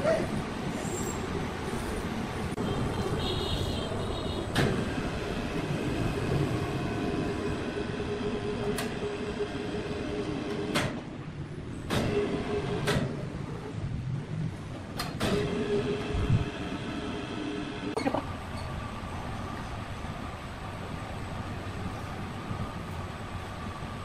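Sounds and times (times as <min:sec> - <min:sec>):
sawmill machinery rumbling: 0:03.9 - 0:20.0.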